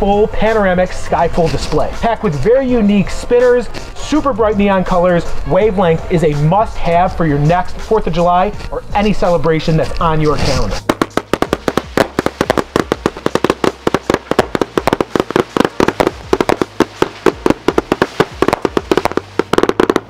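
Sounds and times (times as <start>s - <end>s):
rapid firework shots popping: 10.8s - 20.0s.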